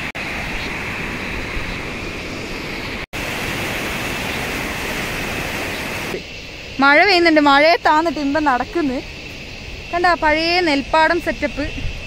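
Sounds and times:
river rushing over rapids: 0.0 - 6.2.

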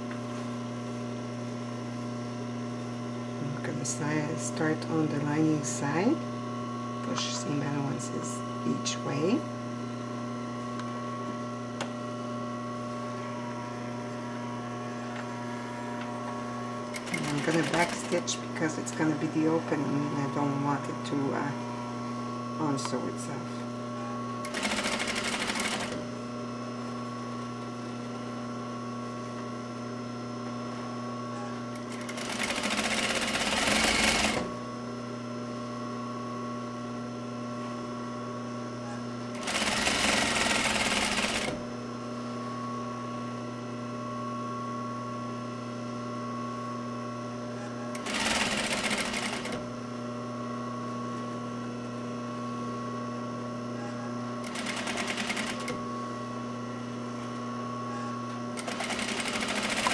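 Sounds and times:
steady hum: 3.4 - 35.2
sewing machine stitching: 16.9 - 19.6, 24.4 - 26.0, 31.8 - 34.5, 39.3 - 41.6, 47.9 - 49.6, 54.4 - 55.8, 58.6 - 59.9.

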